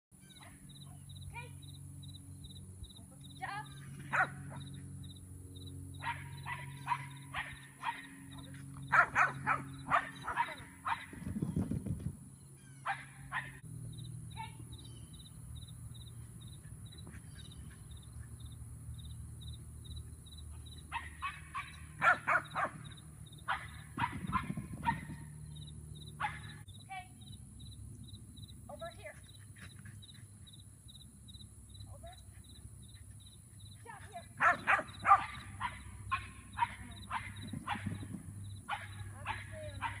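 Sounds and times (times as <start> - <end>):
insects chirping: 0.2 - 11.3, 12.2 - 40.0
small dog barking: 4.1 - 4.7, 6.0 - 11.2, 12.8 - 13.6, 20.9 - 22.9, 23.5 - 25.2, 26.2 - 26.6, 34.4 - 38.0, 38.7 - 40.0.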